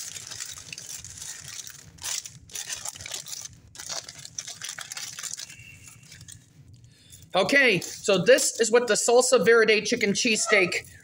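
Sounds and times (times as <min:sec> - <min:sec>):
paper wrapper crinkling: 0:00.0 - 0:08.8.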